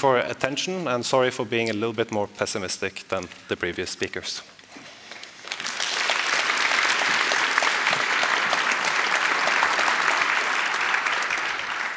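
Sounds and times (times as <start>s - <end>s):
audience applauding: 5.4s - 11.9s.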